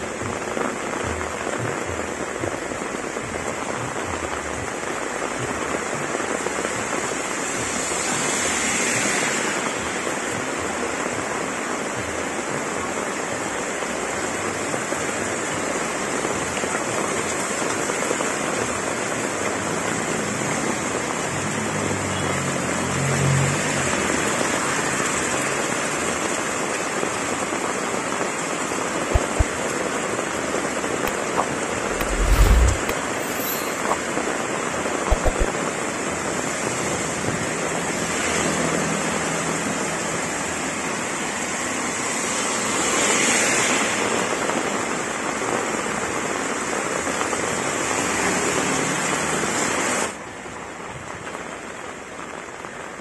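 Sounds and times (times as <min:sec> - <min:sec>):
heavy rain pouring: 0:00.0 - 0:53.0
low rumble: 0:31.9 - 0:33.0.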